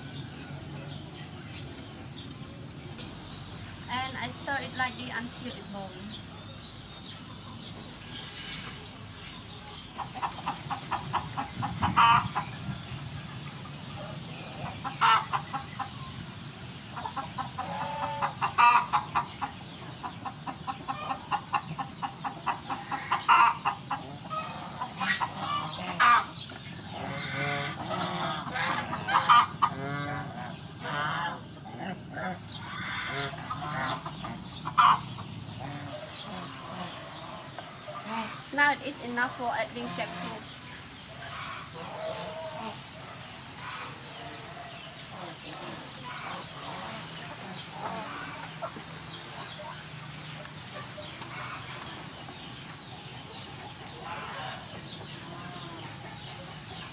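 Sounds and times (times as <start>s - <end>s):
geese honking: 9.9s - 12.7s, 14.0s - 16.0s, 16.9s - 40.5s, 41.1s - 56.9s.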